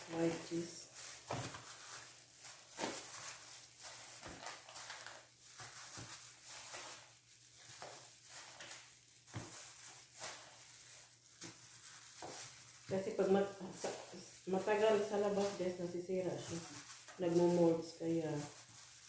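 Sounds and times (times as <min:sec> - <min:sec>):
plastic crinkling and rustling: 0:00.0 - 0:19.0.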